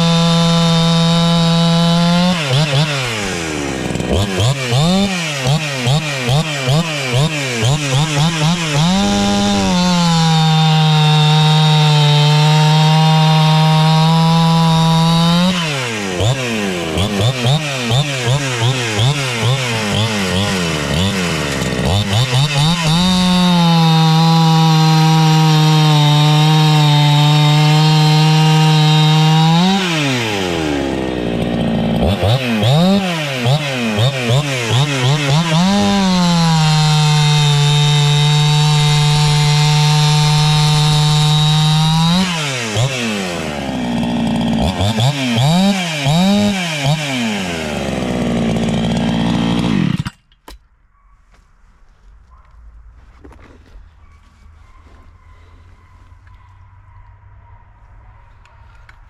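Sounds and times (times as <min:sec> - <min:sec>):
chainsaw cutting log: 0:00.0 - 0:50.6.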